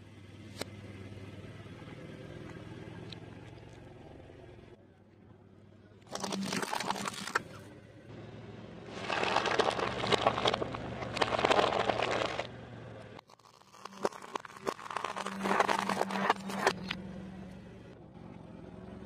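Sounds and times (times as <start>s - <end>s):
cabbage crunching under tyre: 6.1s - 7.6s, 8.9s - 12.5s, 13.2s - 17.0s.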